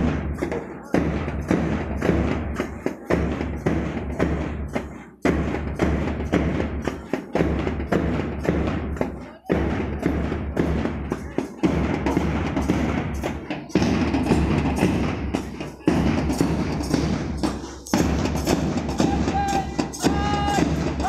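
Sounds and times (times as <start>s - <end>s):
march music with drums: 0.0s - 21.0s.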